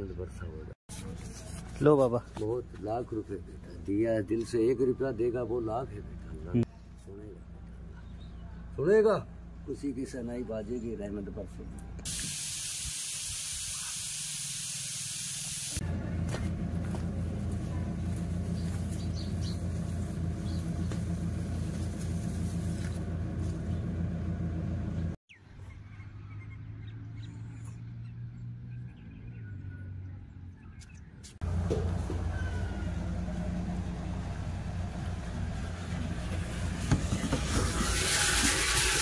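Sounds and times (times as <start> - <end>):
steady hiss: 12.1 - 15.8.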